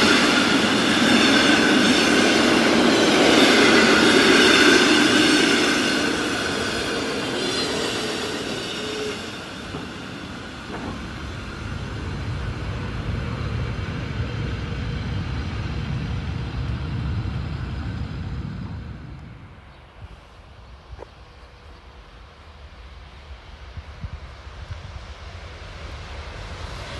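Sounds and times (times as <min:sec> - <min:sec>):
train wheels rushing past: 0:00.0 - 0:26.9
low rumble: 0:10.0 - 0:20.9.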